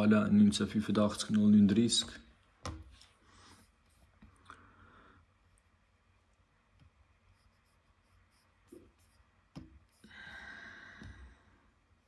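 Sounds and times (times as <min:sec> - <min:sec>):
soft breathy rush: 0:09.9 - 0:11.7.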